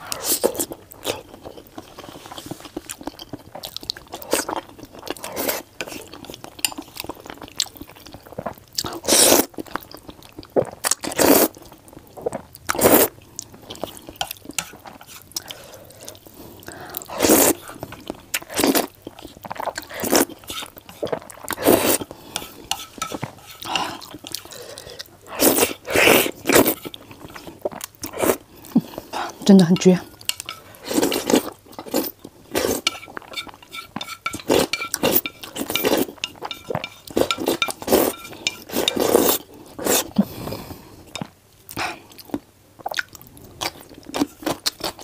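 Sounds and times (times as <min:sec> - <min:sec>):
wet chewing: 0:00.1 - 0:40.3
noodle slurping: 0:18.5 - 0:29.4.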